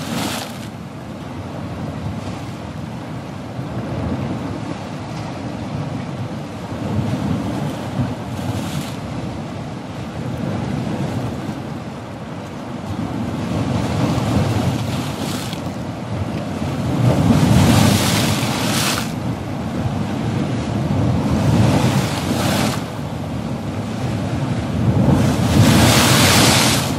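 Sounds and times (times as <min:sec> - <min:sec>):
water rushing from spillway: 0:00.0 - 0:01.2, 0:11.9 - 0:19.4, 0:21.9 - 0:26.9
wind on microphone: 0:00.0 - 0:26.9.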